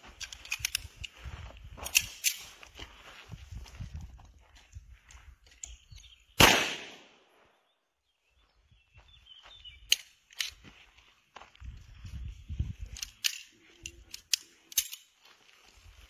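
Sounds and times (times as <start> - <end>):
handgun shot with echo: 6.4 - 7.2.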